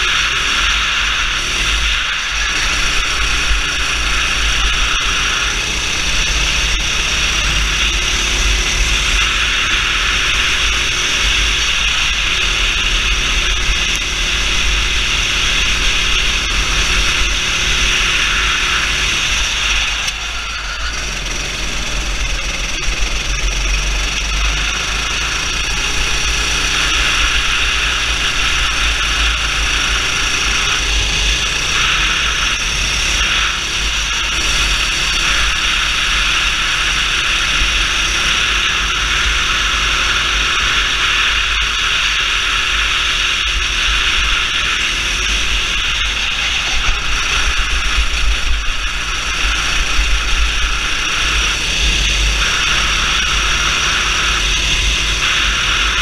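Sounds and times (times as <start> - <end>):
heavy low rumble: 0.0 - 40.8
go-kart engine accelerating: 0.0 - 56.0.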